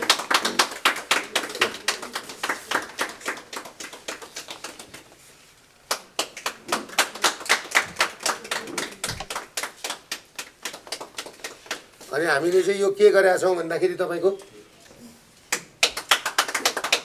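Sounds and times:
people clapping hands: 0.0s - 12.7s, 15.5s - 17.0s.

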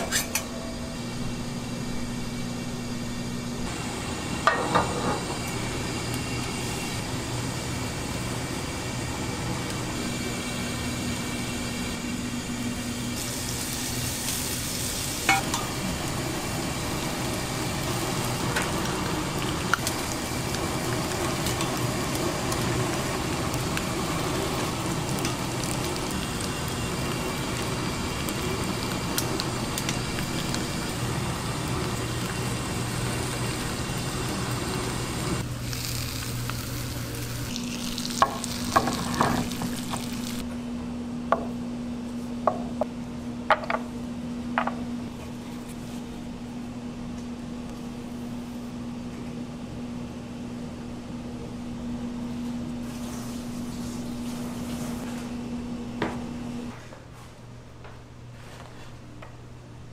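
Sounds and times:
food sizzling on a grill: 13.1s - 40.4s, 52.8s - 54.9s.

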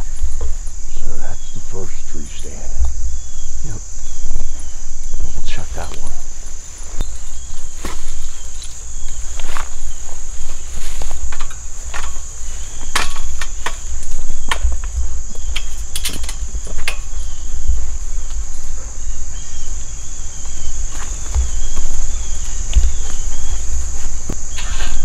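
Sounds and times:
crickets chirping: 0.0s - 25.0s
footsteps through leaf litter: 6.6s - 11.3s, 19.7s - 25.0s.

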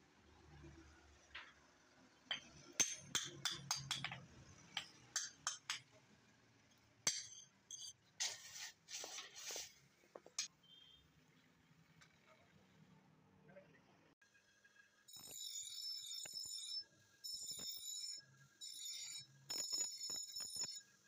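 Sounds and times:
hammer striking metal on anvil: 2.3s - 4.2s, 4.8s - 5.9s, 7.1s - 8.0s.

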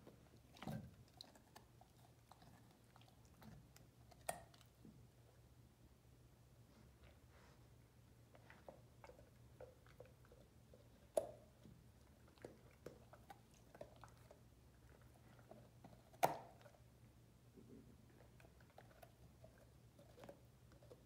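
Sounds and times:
puppy crunching a carrot: 0.0s - 5.0s, 8.3s - 16.9s, 18.0s - 21.0s.

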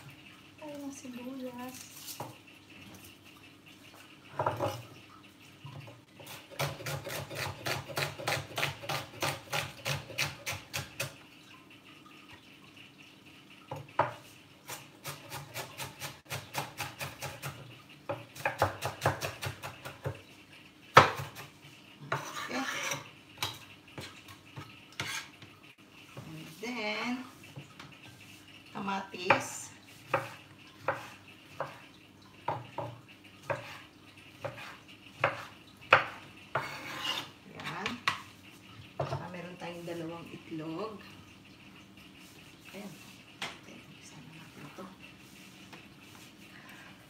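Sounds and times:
knife chopping on cutting board: 30.1s - 31.8s, 34.4s - 37.3s.

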